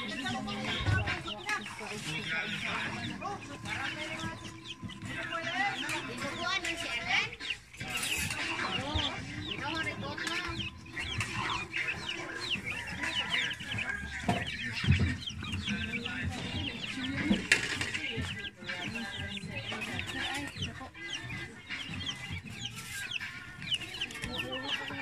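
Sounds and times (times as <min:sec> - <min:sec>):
chickens clucking and chirping: 0:00.0 - 0:25.0.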